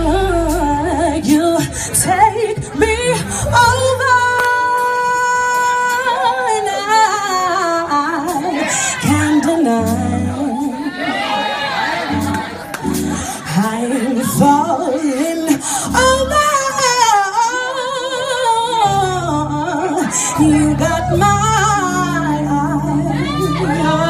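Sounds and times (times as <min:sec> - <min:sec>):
bass: 0:00.0 - 0:10.8, 0:12.1 - 0:24.0
woman singing: 0:00.0 - 0:11.2, 0:13.2 - 0:24.0
drums: 0:00.0 - 0:24.0
keyboard: 0:00.0 - 0:24.0.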